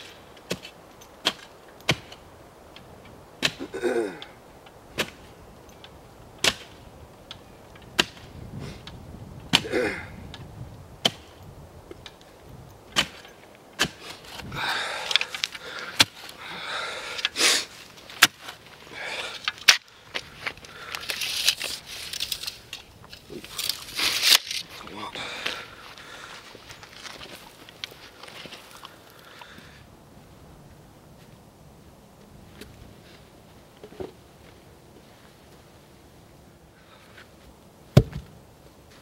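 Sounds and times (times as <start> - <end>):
post-hole digger striking soil: 6.4 - 6.8, 7.9 - 8.3, 11.0 - 11.4, 12.9 - 14.5, 18.2 - 18.6
blades scraping soil: 12.9 - 29.2.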